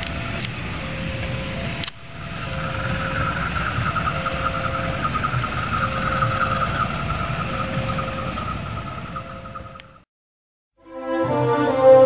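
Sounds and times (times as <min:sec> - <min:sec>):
high-pitched fluttering ringing: 0:00.8 - 0:10.0.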